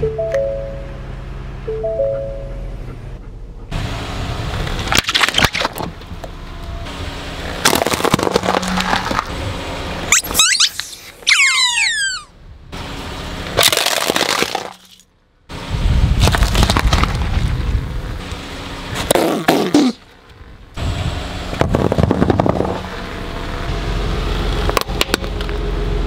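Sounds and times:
plastic cracking under tyre: 4.6 - 6.1, 7.6 - 9.3, 13.6 - 15.0, 16.2 - 17.6
rubber squeaky toys squealing: 10.1 - 12.3.

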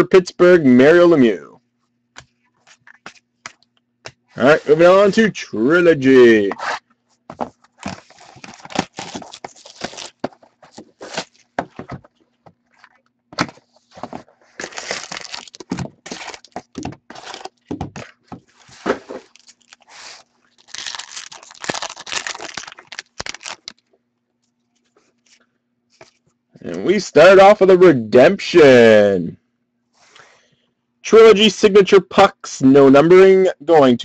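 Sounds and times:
card packs rustling: 6.4 - 23.9
plastic shrink-wrap tearing: 8.0 - 11.5, 14.6 - 17.6, 19.2 - 23.8.

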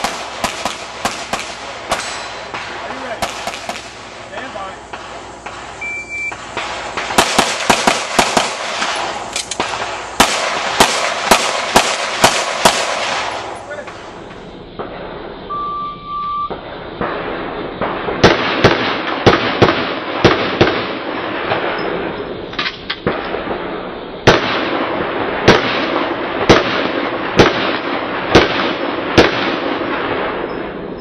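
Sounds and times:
pistol shots: 0.0 - 15.1, 16.5 - 22.2, 22.9 - 30.8
shot timer beep: 5.8 - 6.4, 15.5 - 16.5.

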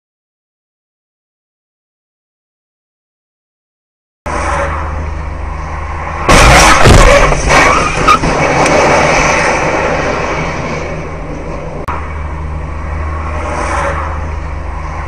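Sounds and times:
car engine hum: 4.3 - 15.0.

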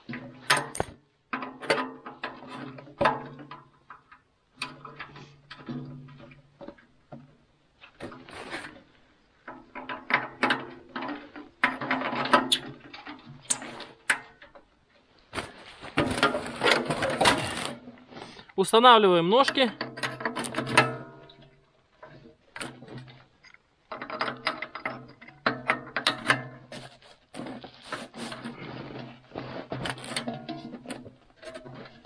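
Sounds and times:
metal clicks and knocks: 0.0 - 8.8, 9.4 - 14.8, 19.4 - 27.6.

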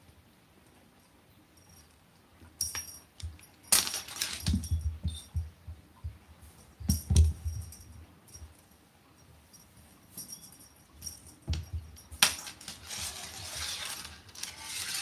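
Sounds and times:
collar bell jingling: 2.6 - 5.5, 6.6 - 12.2.

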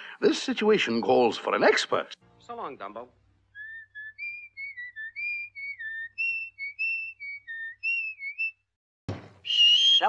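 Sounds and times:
person whistling a tune: 3.6 - 8.6, 9.4 - 10.0.

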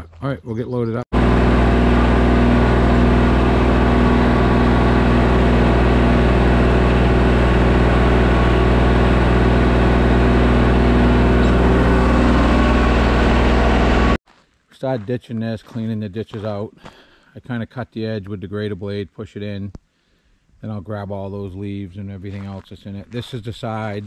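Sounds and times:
diesel engine running: 1.2 - 14.2.

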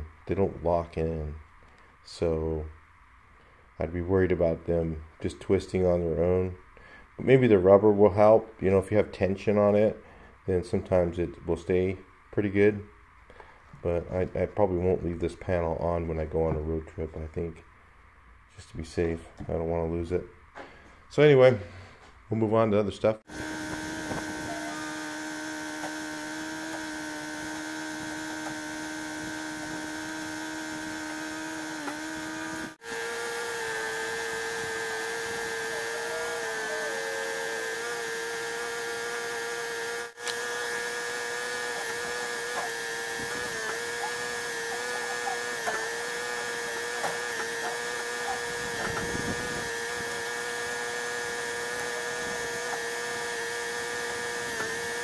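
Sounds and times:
power tool whining: 23.2 - 55.0.

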